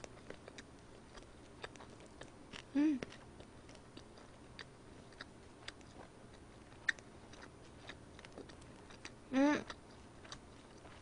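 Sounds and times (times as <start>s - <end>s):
chewing food mouth clicks: 0.0s - 11.0s.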